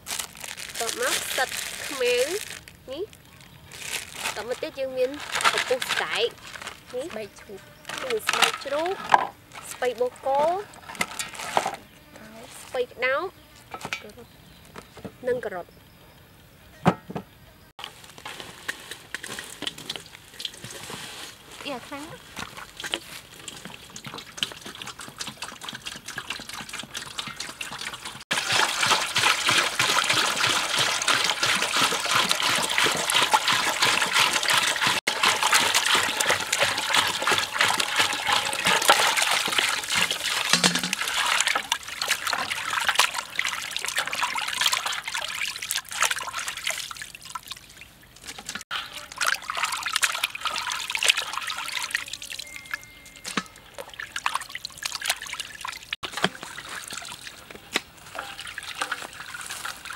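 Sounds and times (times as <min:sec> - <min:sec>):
water pouring and splashing: 0:00.0 - 0:11.8, 0:17.8 - 0:59.9
hands swishing meat in water: 0:22.4 - 0:47.1.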